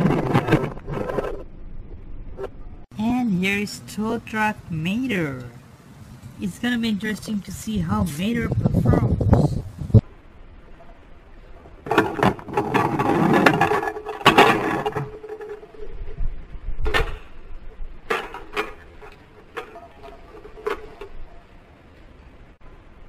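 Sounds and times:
toy truck rolling on plastic ramp: 11.9s - 16.0s.

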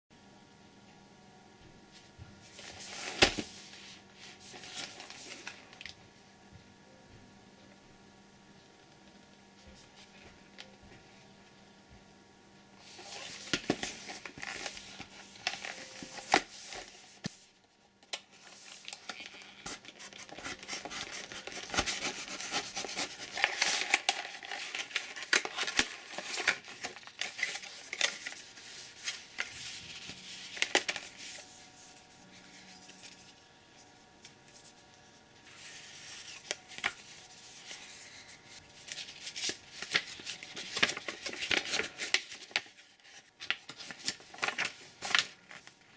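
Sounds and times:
cardboard packaging rustling: 12.8s - 17.4s, 18.2s - 34.8s, 35.4s - 45.9s
paper insert being unfolded: 12.8s - 17.4s, 18.1s - 34.8s, 35.5s - 45.9s.

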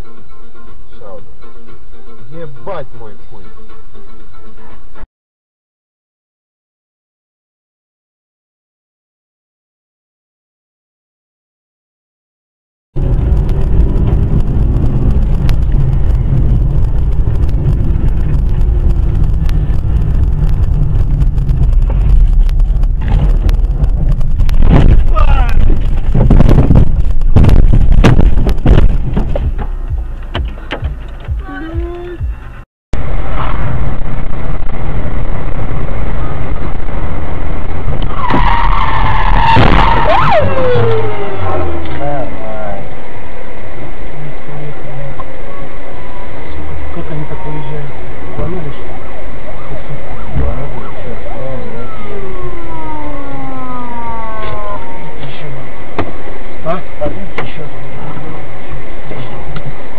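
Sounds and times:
car engine and tyres rumbling: 0.0s - 5.0s, 13.0s - 59.9s
tyres squealing in a skid: 38.0s - 42.0s.

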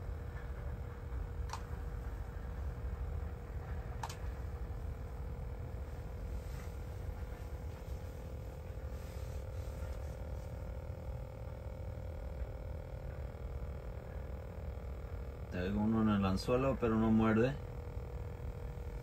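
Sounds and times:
thin electronic hum: 0.0s - 19.0s
sharp clicks: 4.0s - 4.2s.

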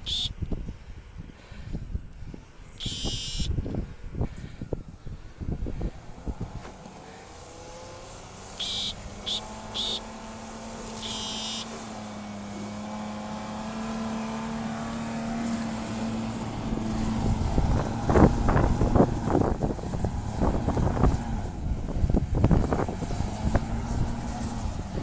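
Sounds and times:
high-pitched squeaks: 2.8s - 3.5s, 8.6s - 10.1s, 11.0s - 11.8s
truck engine pulling under load: 3.9s - 25.0s.

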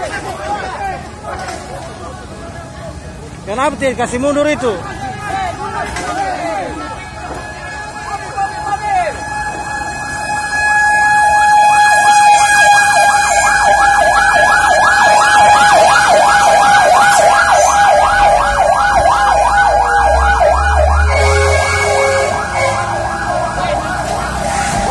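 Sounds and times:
truck engine rumbling: 0.0s - 24.9s
fire truck siren warbling: 7.3s - 24.9s.

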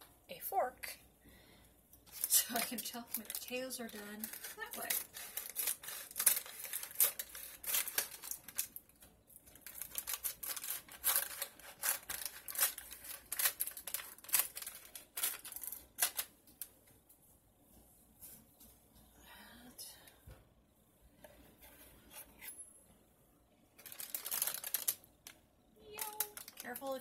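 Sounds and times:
plastic crinkling: 2.0s - 16.7s, 23.7s - 27.0s
scissors snipping plastic bag: 2.1s - 8.8s, 9.5s - 16.3s, 23.8s - 25.0s, 26.0s - 27.0s.

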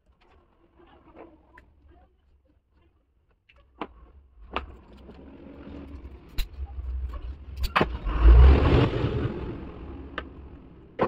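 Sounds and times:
rumbling rush: 4.8s - 11.0s.

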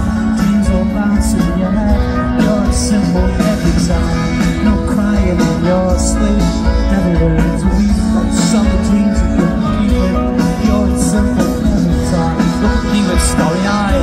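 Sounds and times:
live pop-rock band: 0.0s - 14.0s
strong bass: 0.0s - 14.0s.

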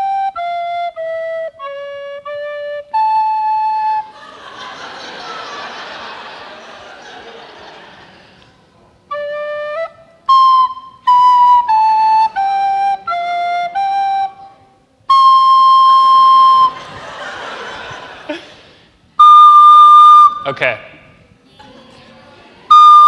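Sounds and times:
recorder playing a tune: 0.0s - 4.2s, 9.1s - 17.0s, 19.2s - 20.5s, 22.7s - 23.0s
audience noise: 4.0s - 9.1s, 16.6s - 19.1s.

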